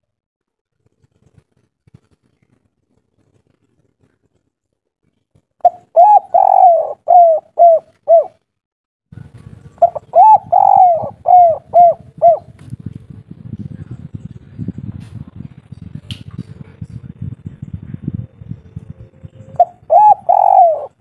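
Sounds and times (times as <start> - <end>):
dove cooing: 5.6 - 8.4, 9.6 - 12.6, 18.4 - 21.0.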